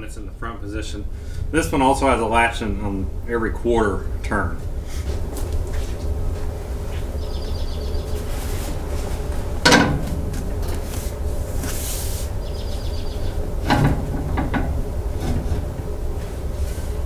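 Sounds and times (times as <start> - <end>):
steady low hum: 0.0 - 17.0
seat base metal clunks: 9.6 - 11.1, 13.6 - 16.0.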